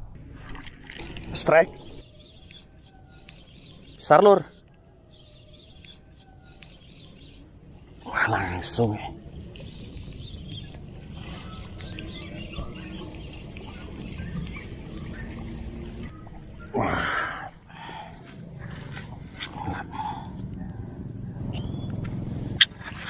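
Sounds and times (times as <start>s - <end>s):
steady low rumble: 5.9s - 23.0s.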